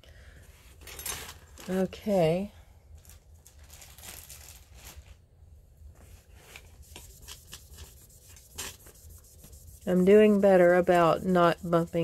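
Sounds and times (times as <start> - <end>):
pad rubbing on stone: 6.8 - 12.0.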